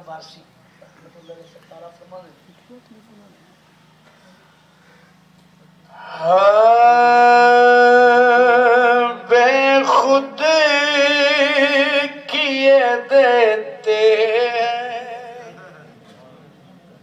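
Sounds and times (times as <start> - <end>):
man singing through loudspeakers: 6.0 - 15.9.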